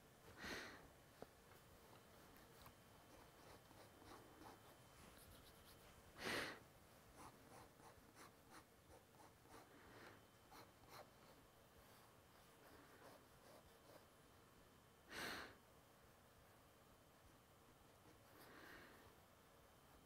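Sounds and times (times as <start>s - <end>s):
person breathing: 0.3s - 1.0s, 6.1s - 6.7s, 9.5s - 10.3s, 15.1s - 15.6s, 18.2s - 19.2s
pen nib scratching paper: 2.4s - 5.9s, 7.2s - 9.7s.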